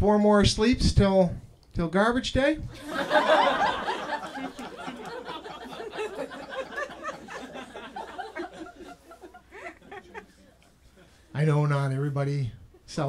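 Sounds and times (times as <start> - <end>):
audience laughing: 2.7 - 11.2.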